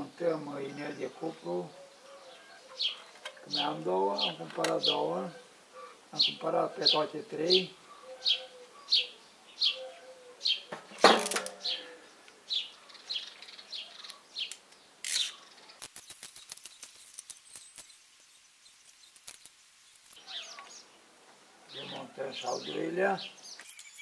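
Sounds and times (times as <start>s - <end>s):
small bird chirping: 1.3s - 10.7s, 11.6s - 21.1s, 21.7s - 24.0s.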